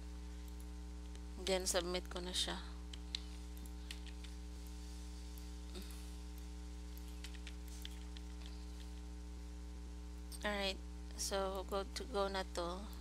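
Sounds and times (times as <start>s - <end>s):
electrical mains hum: 0.0s - 13.0s
computer mouse clicks: 2.9s - 5.5s, 6.3s - 9.1s.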